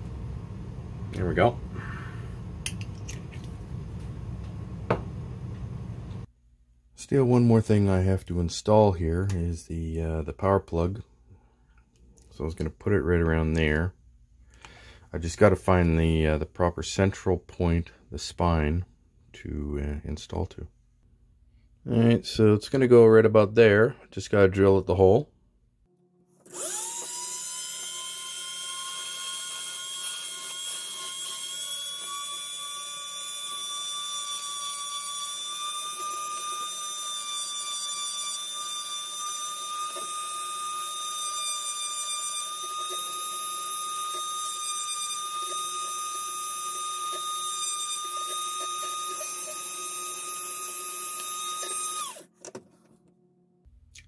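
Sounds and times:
electric drill whining: 26.4 - 52.3.

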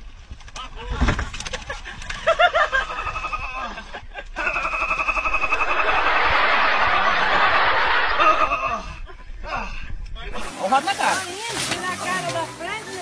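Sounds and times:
person laughing: 2.3 - 9.6.

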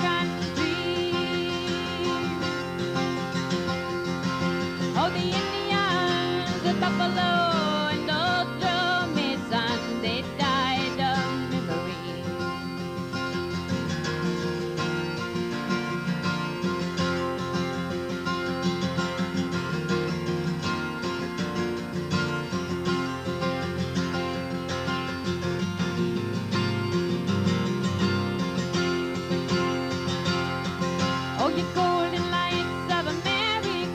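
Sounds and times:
woman singing: 0.0 - 3.1, 4.7 - 12.7, 31.3 - 33.9
acoustic guitar playing: 0.0 - 33.9.

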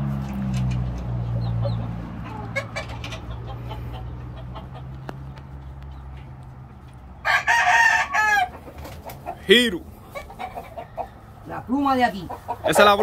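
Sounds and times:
chickens clucking faintly: 0.3 - 13.0
rooster crowing: 7.2 - 8.6.

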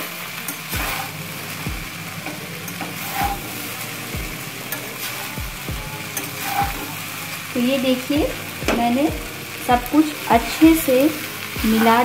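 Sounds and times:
rice sizzling in a pan: 0.0 - 12.0
steel spatula striking pan: 0.4 - 7.0.

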